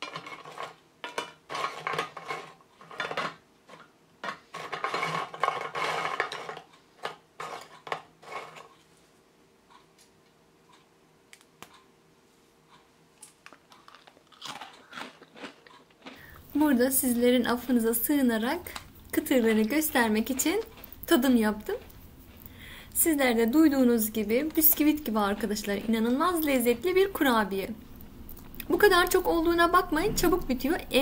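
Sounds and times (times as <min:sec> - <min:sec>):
cookies crunching: 0:00.0 - 0:08.9, 0:13.2 - 0:22.8.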